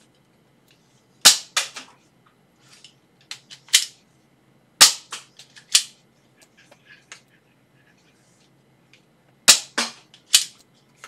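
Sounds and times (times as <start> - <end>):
dart blaster plastic clicks: 9.5 - 10.6.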